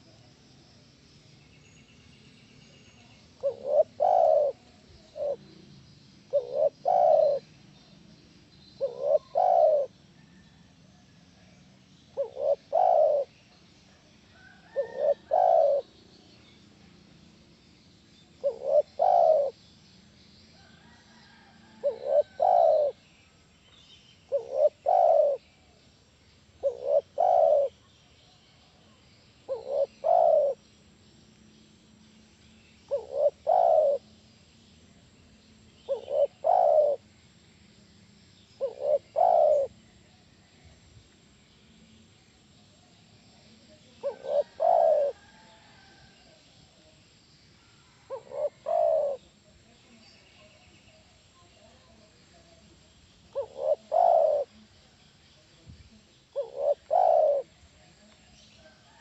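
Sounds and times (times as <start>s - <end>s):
dove cooing: 3.3s - 7.6s, 8.8s - 10.5s, 12.1s - 13.4s, 14.4s - 16.0s, 18.4s - 19.6s, 20.8s - 23.0s, 24.3s - 25.5s, 26.6s - 27.9s, 29.5s - 30.6s, 32.9s - 34.1s, 35.8s - 37.0s, 38.6s - 39.9s, 43.9s - 46.1s, 47.9s - 49.4s, 53.3s - 54.7s, 56.3s - 59.0s.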